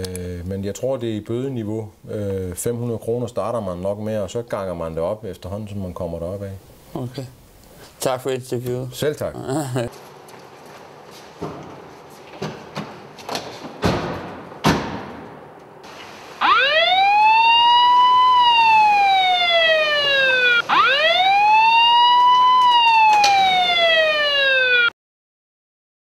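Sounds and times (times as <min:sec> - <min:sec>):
sharp knocks: 0:12.4 - 0:15.4
police siren wailing: 0:16.3 - 0:24.9.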